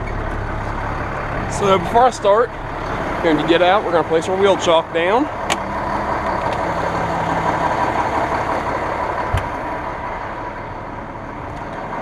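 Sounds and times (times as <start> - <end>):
fire engine idling: 0.0 - 12.0.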